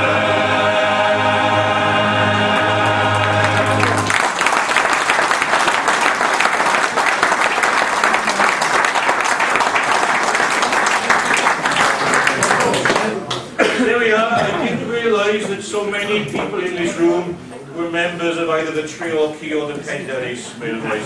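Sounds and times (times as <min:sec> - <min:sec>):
male choir singing chord: 0:00.0 - 0:04.2
audience applauding: 0:02.5 - 0:13.6.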